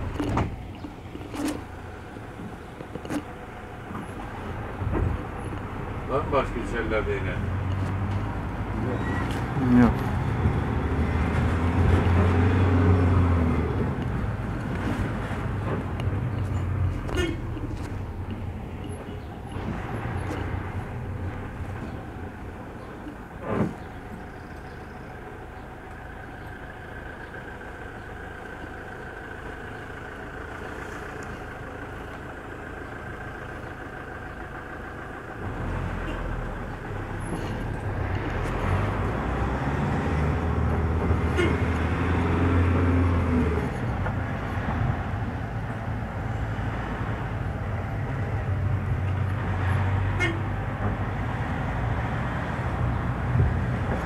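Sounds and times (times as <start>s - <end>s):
bus interior hum: 0.0s - 54.0s
low engine rumble: 0.0s - 54.0s.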